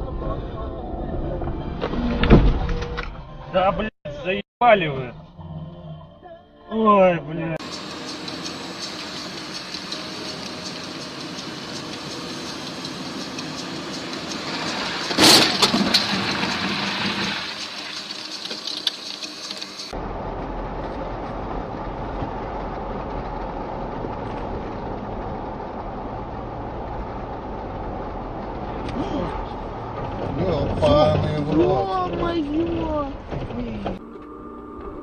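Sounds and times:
car engine drone: 0:00.0 - 0:03.9, 0:07.5 - 0:35.0
car road noise: 0:07.6 - 0:35.0
crackling breaking debris: 0:14.5 - 0:19.7
loud crash impact: 0:14.7 - 0:17.5.

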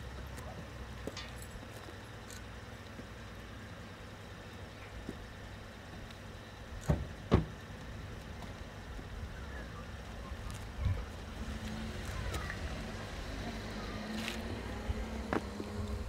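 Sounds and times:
car engine idling: 0:00.0 - 0:16.0
car door shutting: 0:06.8 - 0:07.6.

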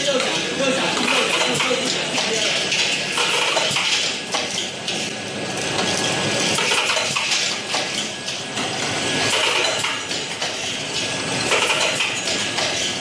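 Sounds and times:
capsules clattering on vibrating trays: 0:00.0 - 0:13.0.

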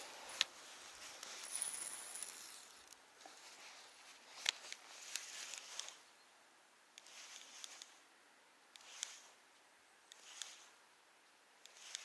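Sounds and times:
faint rustling and handling: 0:00.0 - 0:06.1.

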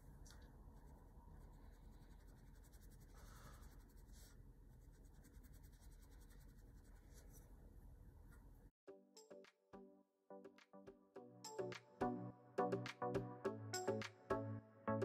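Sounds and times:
paintbrush scratching on paper: 0:00.7 - 0:07.6.

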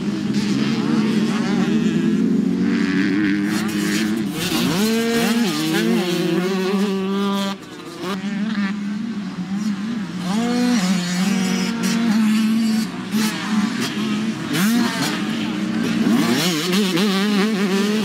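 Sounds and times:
dirt bike engines revving: 0:00.0 - 0:18.0.

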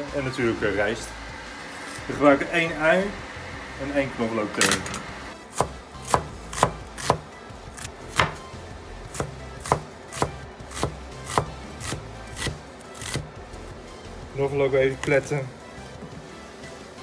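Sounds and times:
cleaver chopping on wooden board: 0:05.5 - 0:08.4, 0:09.1 - 0:13.3.

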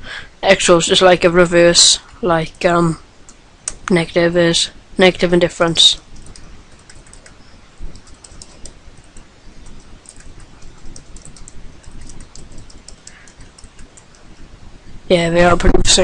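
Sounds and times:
computer keyboard clicks: 0:06.2 - 0:14.2.

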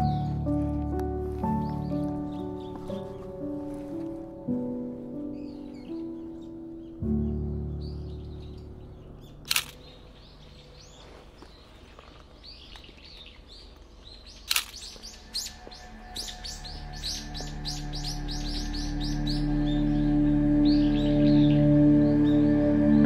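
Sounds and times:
small birds chirping: 0:00.0 - 0:23.0
soft background music: 0:00.0 - 0:23.0
camera shutter clicks: 0:09.4 - 0:09.8, 0:14.5 - 0:14.9.

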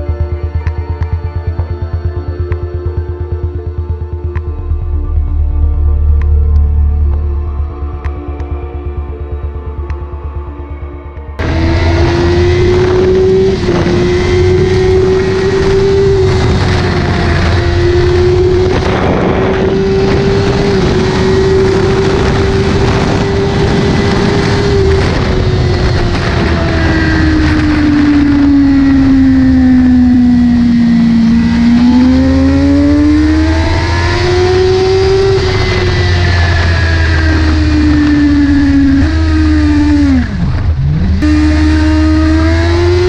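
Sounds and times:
motorcycle engine at high revs: 0:00.0 - 0:04.7, 0:11.4 - 0:43.0
wind rushing: 0:11.4 - 0:42.8.

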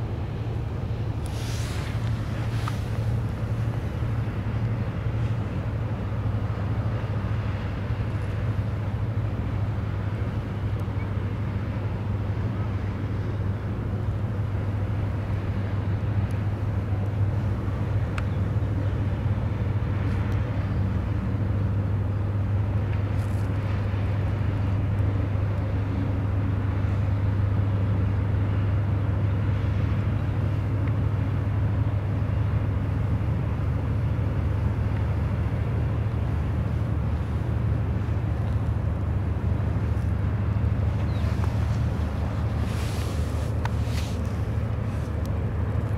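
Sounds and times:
barge engine droning: 0:00.0 - 0:45.9.

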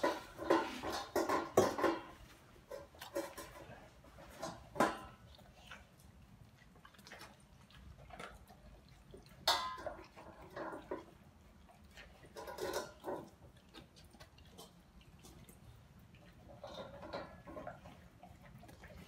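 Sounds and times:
metal bowls clinking: 0:00.0 - 0:05.2, 0:09.4 - 0:11.1, 0:12.3 - 0:13.4, 0:16.6 - 0:17.8
dogs licking bowls: 0:00.0 - 0:19.0.

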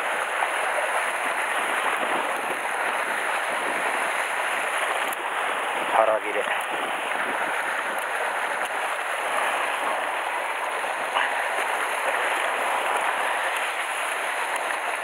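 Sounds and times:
surf washing over rocks: 0:00.0 - 0:15.0.

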